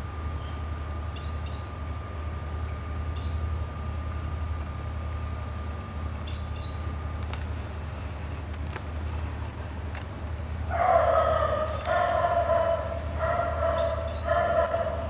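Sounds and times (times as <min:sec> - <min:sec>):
bird calls: 0:00.3 - 0:03.8, 0:06.1 - 0:07.7, 0:10.6 - 0:15.0
steady low rumble: 0:01.8 - 0:15.0.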